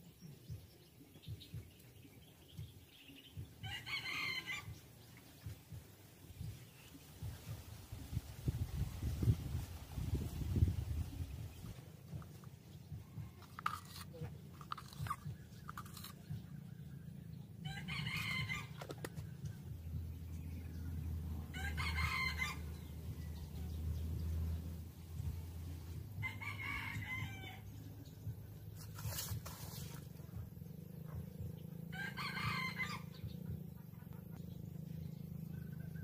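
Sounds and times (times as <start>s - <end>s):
low steady hum: 0.0s - 36.0s
rooster crowing: 26.2s - 27.6s, 31.9s - 33.1s.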